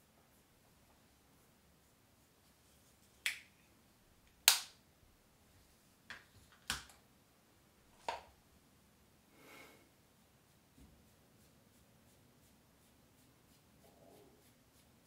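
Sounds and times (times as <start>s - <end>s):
soft rustle: 0.0s - 3.8s, 10.1s - 15.0s.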